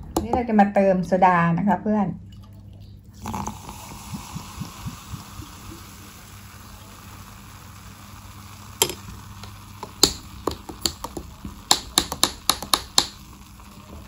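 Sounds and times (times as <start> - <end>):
soda water fizzing in a glass: 3.1 - 11.6.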